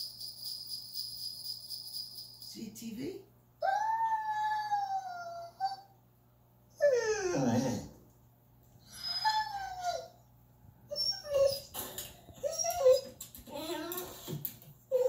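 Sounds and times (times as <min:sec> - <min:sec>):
dog whimpering: 0:03.6 - 0:05.9, 0:06.7 - 0:08.0, 0:08.8 - 0:10.2, 0:10.9 - 0:13.8
dog whining: 0:03.6 - 0:06.0, 0:06.7 - 0:08.0, 0:08.8 - 0:10.3, 0:10.9 - 0:14.2.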